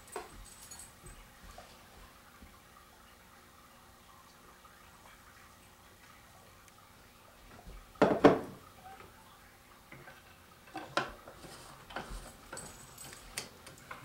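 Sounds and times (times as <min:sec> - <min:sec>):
jug and glasses set down: 0:08.0 - 0:08.6.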